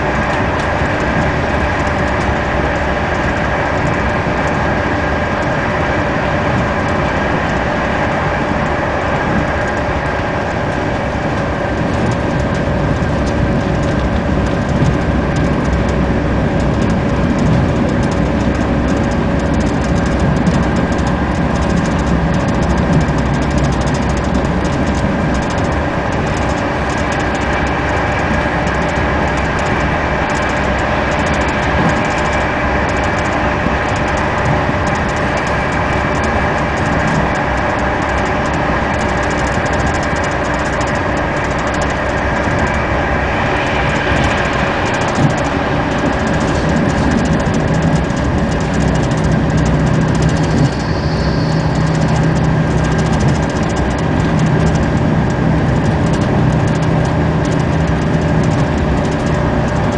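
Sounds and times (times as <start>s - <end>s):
train running on rails: 0.0s - 59.9s
whining tones: 25.6s - 59.9s.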